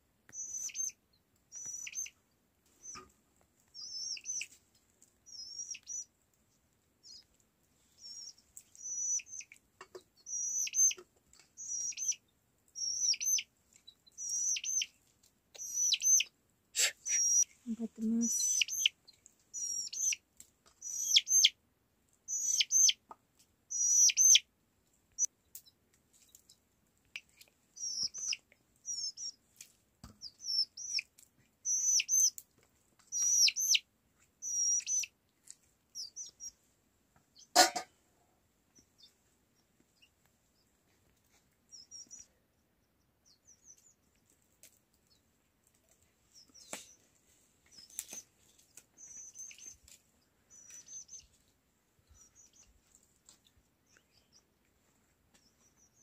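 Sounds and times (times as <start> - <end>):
high-pitched bird chirps: 0.3 - 2.2, 3.8 - 4.5, 5.3 - 6.1, 8.0 - 9.5, 10.2 - 11.0, 11.6 - 12.2, 12.8 - 13.5, 14.1 - 14.9, 15.6 - 18.9, 19.5 - 20.2, 20.8 - 21.6, 22.3 - 23.0, 23.7 - 24.4, 27.8 - 29.4, 30.2 - 32.4, 33.1 - 33.8, 34.4 - 35.1, 36.0 - 36.6, 41.7 - 42.3, 49.0 - 49.8, 50.5 - 51.3.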